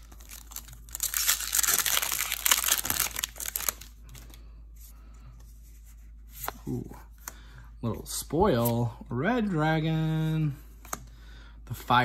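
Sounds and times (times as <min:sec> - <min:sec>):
plastic wrapper crinkling: 0:00.0 - 0:04.4.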